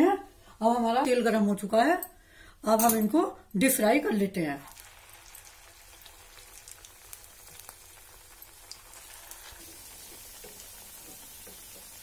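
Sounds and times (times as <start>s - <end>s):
deep-frying in hot oil: 4.1s - 12.0s.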